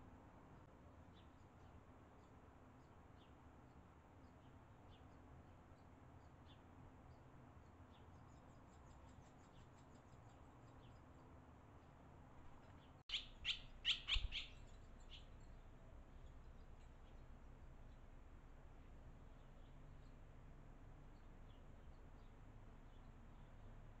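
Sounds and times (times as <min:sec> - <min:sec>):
swallows chirping: 0:12.6 - 0:17.3.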